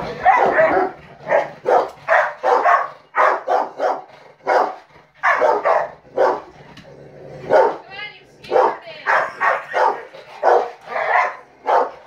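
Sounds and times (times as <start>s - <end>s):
dogs barking in bursts: 0.0s - 6.8s, 7.4s - 12.0s.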